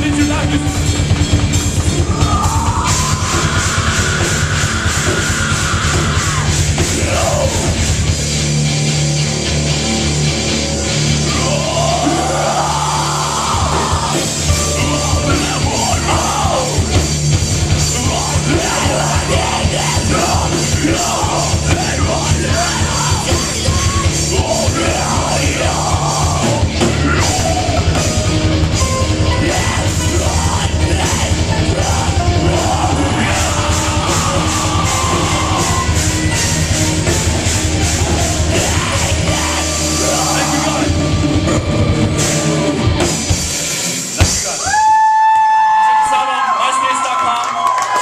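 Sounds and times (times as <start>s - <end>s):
live rock band playing: 0.0s - 46.0s
person singing: 11.3s - 17.0s, 17.8s - 36.4s, 38.0s - 42.6s.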